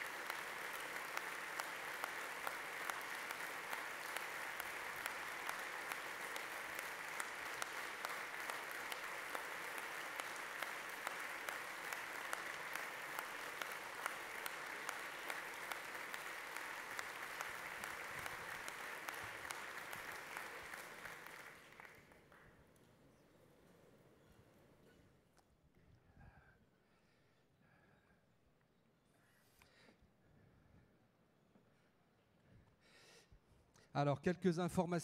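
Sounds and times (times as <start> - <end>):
audience applause: 0.0 - 22.4.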